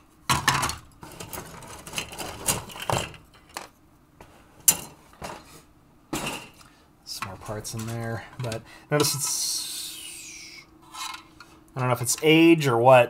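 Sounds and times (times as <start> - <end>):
plastic parts knocking and clicking: 0.3 - 3.7.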